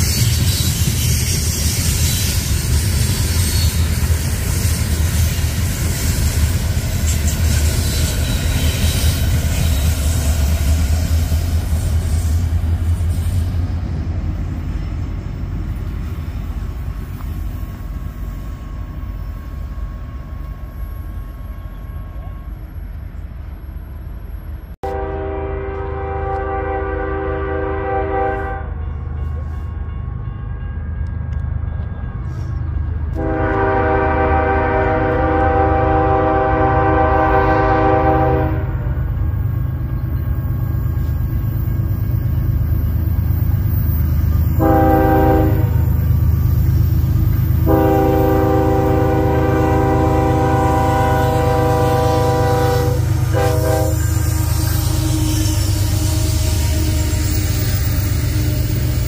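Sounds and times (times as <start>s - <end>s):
train rumble: 0.0s - 59.0s
locomotive air horn blasts: 24.8s - 28.9s, 33.1s - 39.0s, 44.6s - 46.0s, 47.6s - 59.0s.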